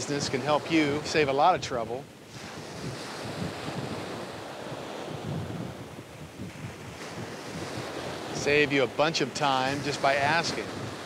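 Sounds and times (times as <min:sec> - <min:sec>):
ocean surf breaking: 0:00.0 - 0:11.0
wind rumbling on microphone: 0:00.0 - 0:11.0.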